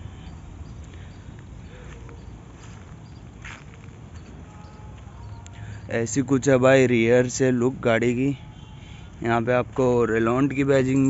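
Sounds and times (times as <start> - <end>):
footsteps on dirt: 0.8 - 6.0.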